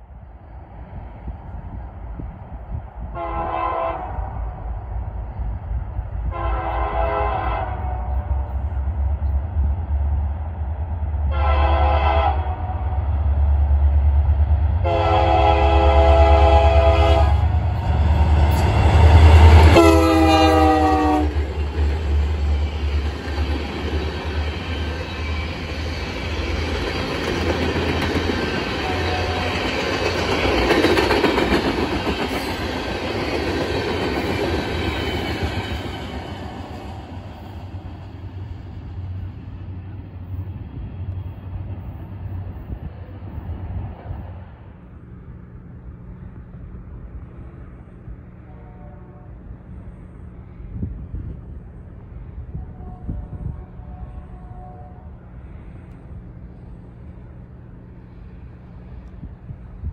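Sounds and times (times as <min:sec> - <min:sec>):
locomotive air horn blasts: 0:03.1 - 0:04.5, 0:06.3 - 0:08.6, 0:11.3 - 0:13.0, 0:14.8 - 0:17.6, 0:19.5 - 0:21.4, 0:28.8 - 0:29.6, 0:48.4 - 0:49.6, 0:52.5 - 0:55.2
heavy low engine rumble: 0:07.8 - 0:59.9
train wheels clacking on rails: 0:17.4 - 0:38.2.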